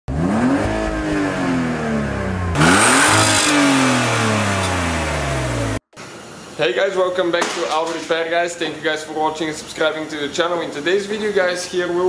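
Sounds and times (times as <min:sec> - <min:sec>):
car engine revving: 0:00.1 - 0:05.8.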